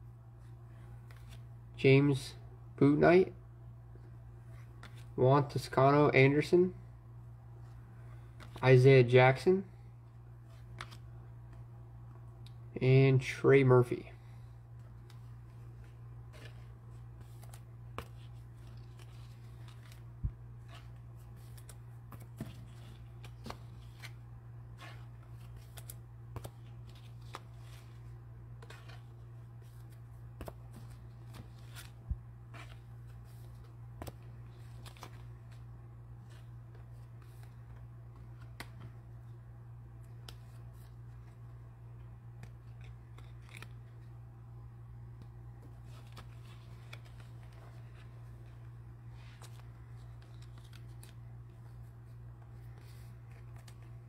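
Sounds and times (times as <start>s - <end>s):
steady low hum: 0.0s - 54.0s
cards and wrappers handled: 14.7s - 39.4s, 40.0s - 44.2s, 45.1s - 54.0s.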